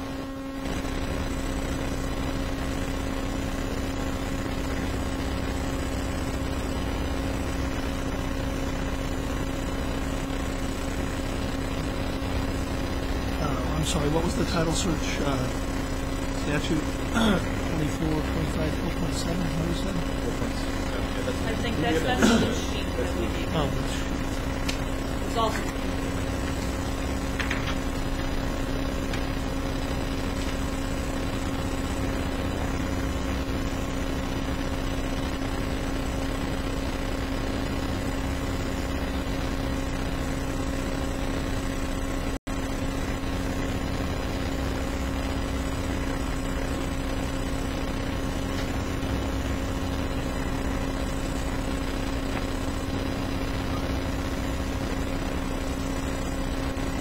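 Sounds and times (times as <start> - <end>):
room tone hum and hiss: 0.0 - 42.4
constant pitched tone: 0.0 - 57.0.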